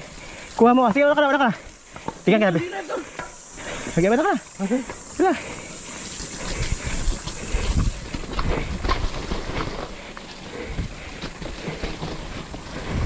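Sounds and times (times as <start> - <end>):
bike tyres rumbling over dirt: 0.0 - 13.0
bike rattling and knocking: 4.4 - 13.0.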